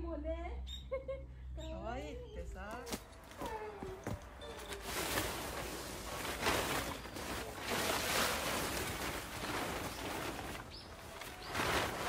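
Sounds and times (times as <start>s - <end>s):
plastic tarp rustling on stone: 2.9s - 12.0s.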